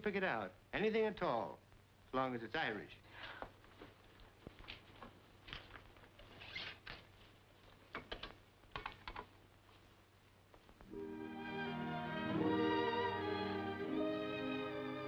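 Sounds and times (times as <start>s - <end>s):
records clicking and rustling: 3.4s - 9.6s.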